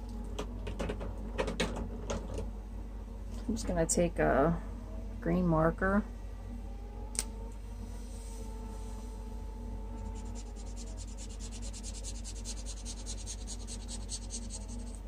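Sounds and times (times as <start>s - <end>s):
marker scratching on paper: 10.2s - 15.0s.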